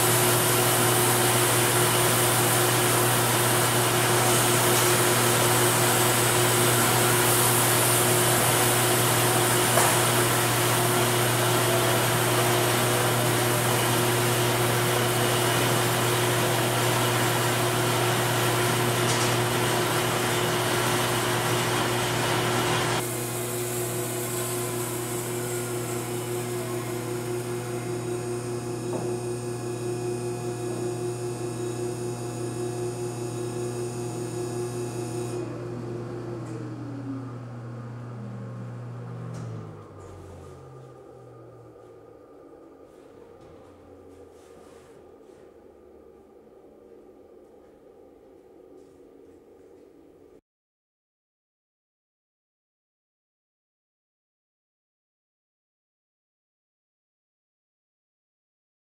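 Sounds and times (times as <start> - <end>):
band sawmill running: 0.0 - 44.5
steady low hum: 25.3 - 50.4.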